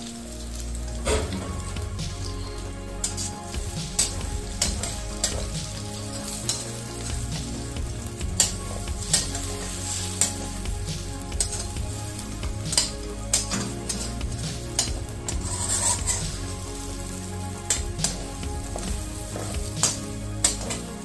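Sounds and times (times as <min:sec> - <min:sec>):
eggs sizzling in oil: 0:00.0 - 0:21.0
spatula scraping wok: 0:00.1 - 0:21.0
spatula clicking against wok: 0:19.8 - 0:20.8.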